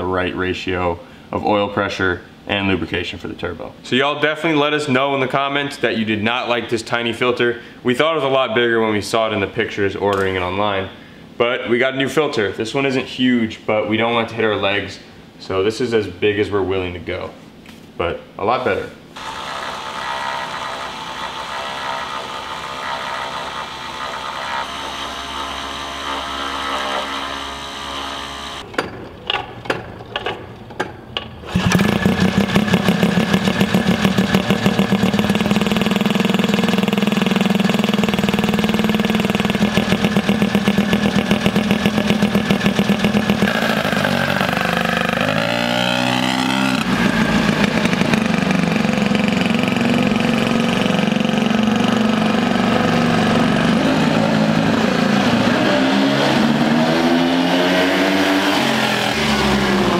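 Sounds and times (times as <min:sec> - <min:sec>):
quad engine idling and revving: 0:19.2 - 0:28.6, 0:31.5 - 0:59.9.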